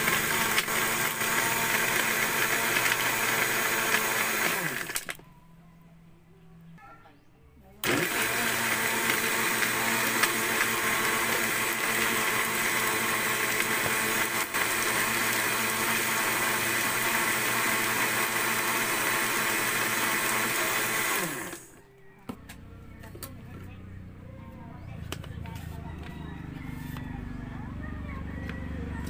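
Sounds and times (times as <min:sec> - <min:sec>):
blender motor winding down: 0:00.0 - 0:05.2, 0:07.8 - 0:21.8
blender running: 0:00.0 - 0:05.2, 0:07.8 - 0:21.8.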